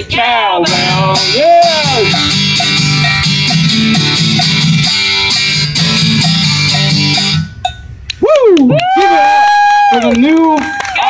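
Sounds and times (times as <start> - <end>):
acoustic guitar strumming: 0.0 - 8.1
man singing: 0.6 - 2.2
cowbell struck: 0.7 - 8.0.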